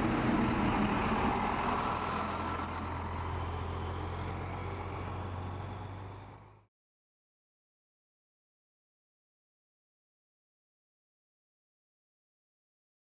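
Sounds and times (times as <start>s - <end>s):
vehicle engine humming: 0.0s - 6.7s.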